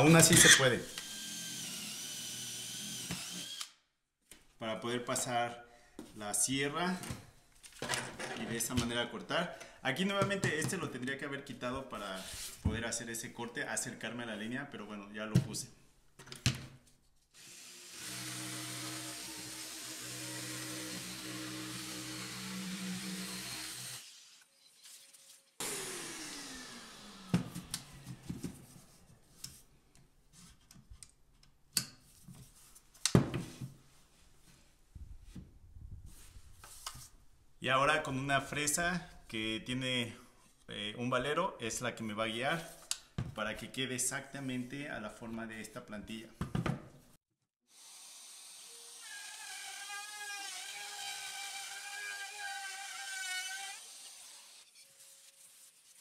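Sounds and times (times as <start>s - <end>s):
wood router whining: 0.5s - 3.7s, 17.4s - 24.1s, 25.6s - 28.4s, 47.8s - 54.6s
jigsaw motor running: 1.0s - 3.7s, 25.6s - 27.4s
power tool winding down: 25.6s - 28.0s.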